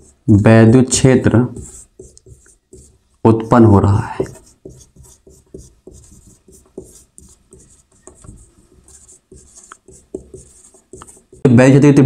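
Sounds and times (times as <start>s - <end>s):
pen scratching while writing: 1.5s - 3.2s, 4.0s - 11.4s.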